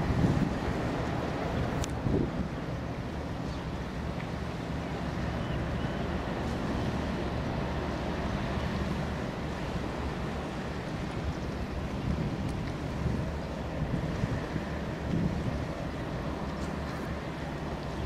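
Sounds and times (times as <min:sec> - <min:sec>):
wind on microphone: 0:00.0 - 0:02.6, 0:10.6 - 0:18.0
faint ship machinery hum: 0:00.0 - 0:18.0
open sea: 0:00.0 - 0:18.0.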